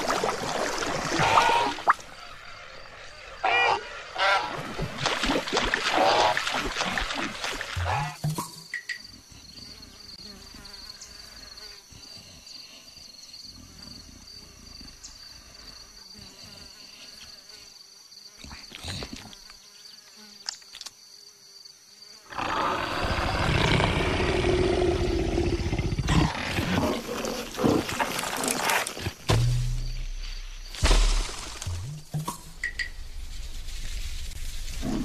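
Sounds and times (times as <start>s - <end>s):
high insect buzz: 5.9s - 35.0s
big cat growl: 22.3s - 29.0s.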